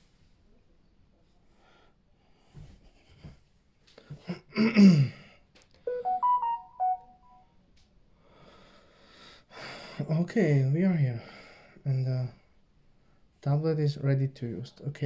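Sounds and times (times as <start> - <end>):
electronic chime: 5.9 - 7.4.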